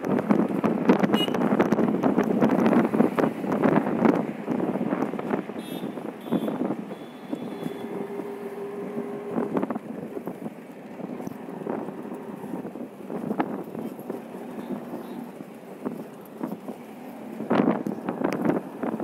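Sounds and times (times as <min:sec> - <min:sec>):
engine and tyre rumble: 0:00.0 - 0:19.0
road traffic rushing past: 0:00.0 - 0:19.0
wind buffeting microphone: 0:00.0 - 0:19.0
steady tone: 0:06.5 - 0:10.2.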